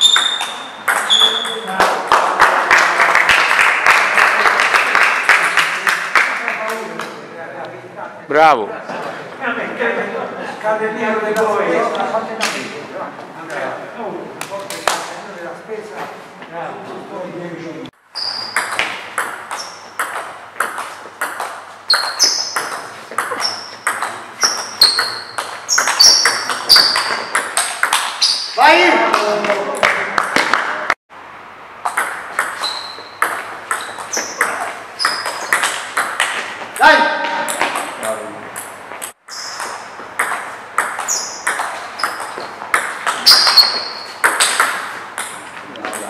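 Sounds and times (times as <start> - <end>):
shoes squeaking on floor: 0.0 - 1.8, 18.1 - 20.0, 20.6 - 28.6, 32.4 - 38.0, 38.7 - 46.0
table tennis ball hitting bats: 0.0 - 2.6, 18.2 - 31.0, 31.8 - 46.0.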